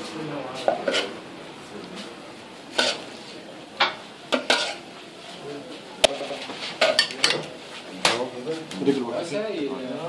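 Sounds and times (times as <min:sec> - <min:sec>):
metal spoon clinking on dish: 0:06.8 - 0:07.5.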